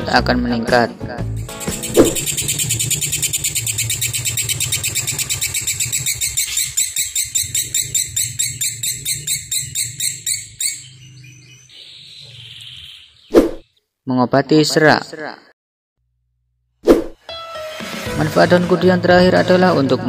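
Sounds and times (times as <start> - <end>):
bird chattering song: 1.4 - 13.8.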